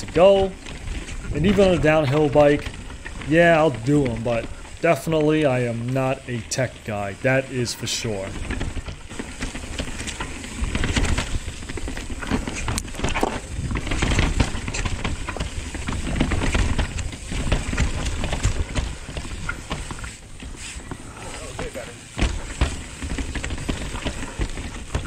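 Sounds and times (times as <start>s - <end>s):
bike knocks and rattles: 0.0s - 25.0s
bike tyres clattering over rock: 0.0s - 25.0s
wind rumble on microphone: 8.4s - 19.9s.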